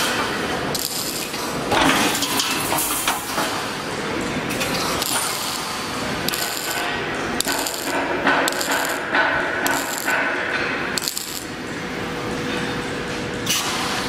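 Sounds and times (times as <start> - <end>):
steady machine hum: 0.0 - 14.0
welding machine clatter and hiss: 0.0 - 14.0.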